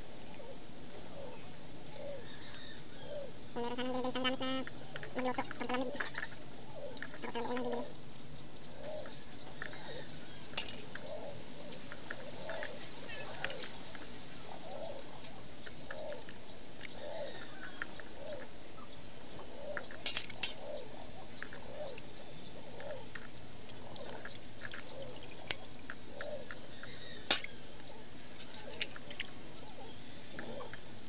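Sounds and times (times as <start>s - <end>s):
animal calling: 2.0s - 7.9s
water dripping: 3.5s - 31.0s.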